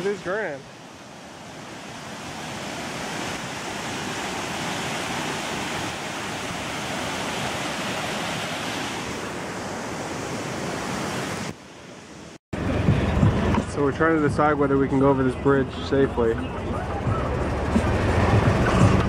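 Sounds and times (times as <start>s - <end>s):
waterfall rushing: 0.0s - 11.6s.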